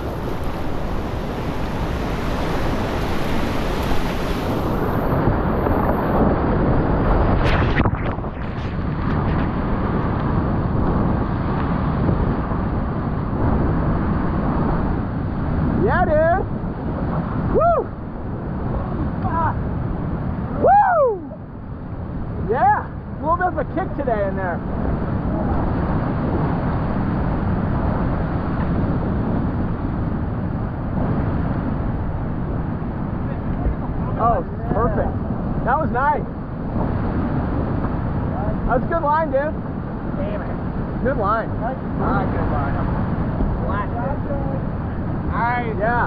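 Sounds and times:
whitewater rapids rushing: 0.0s - 6.2s.

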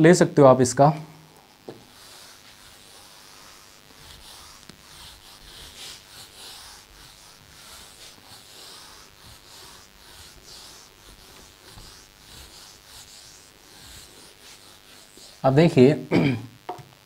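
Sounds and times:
duster swishing on whiteboard: 1.6s - 15.8s.

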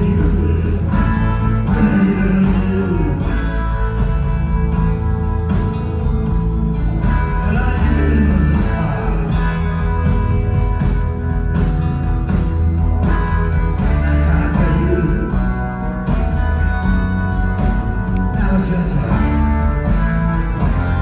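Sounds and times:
drums keeping steady beat: 0.0s - 21.0s
guitar: 0.0s - 21.0s
live blues-rock band: 0.0s - 21.0s.

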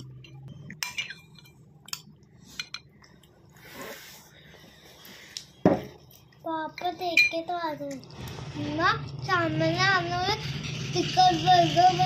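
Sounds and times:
spoon clinking against bowl: 0.0s - 2.9s.

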